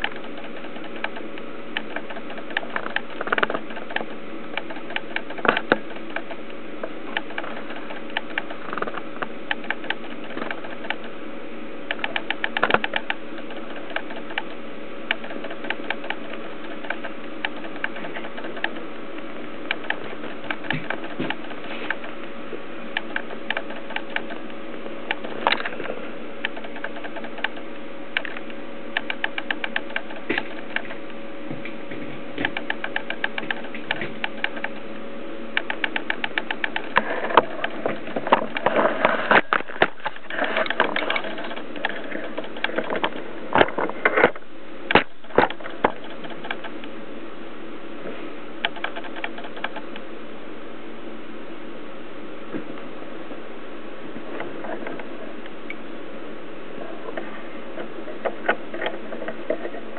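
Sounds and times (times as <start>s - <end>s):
irregular clicks and knocks: 0.0s - 11.2s, 11.8s - 46.9s, 48.6s - 50.0s.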